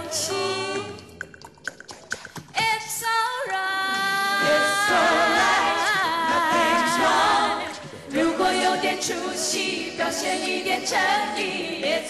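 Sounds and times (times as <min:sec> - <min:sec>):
a cappella harmony voices: 0:00.0 - 0:12.0
woman singing with vibrato: 0:02.6 - 0:09.2.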